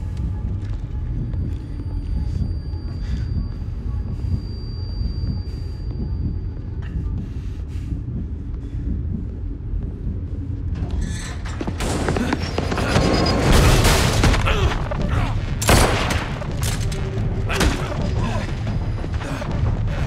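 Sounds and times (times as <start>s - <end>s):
low music drone: 0.0s - 20.0s.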